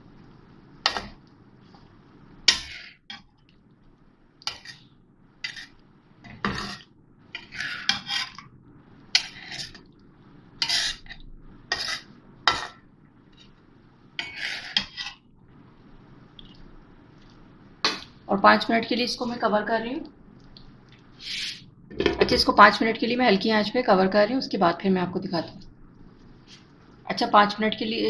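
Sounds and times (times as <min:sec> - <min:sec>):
spatula scraping and clinking pan: 0:02.5 - 0:03.3, 0:04.5 - 0:04.8, 0:07.4 - 0:08.4, 0:09.1 - 0:09.8, 0:10.6 - 0:12.8, 0:14.2 - 0:15.2.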